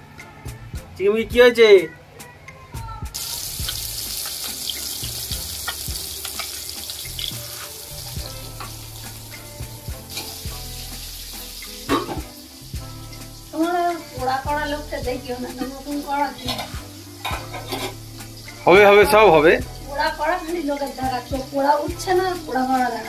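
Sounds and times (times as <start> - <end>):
oil sizzling: 3.1 - 23.0
spatula scraping pan: 16.4 - 18.5.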